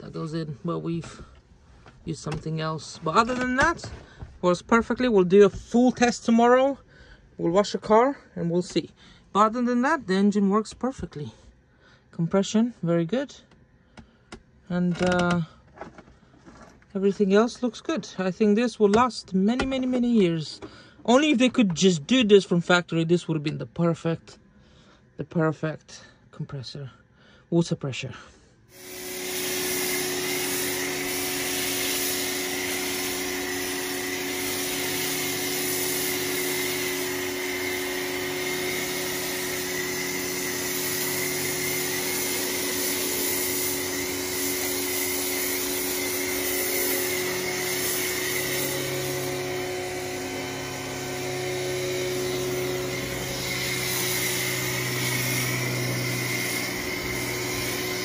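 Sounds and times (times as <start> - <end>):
hiss of spray: 28.7 - 58.0
pressure washer motor hum: 28.7 - 58.0.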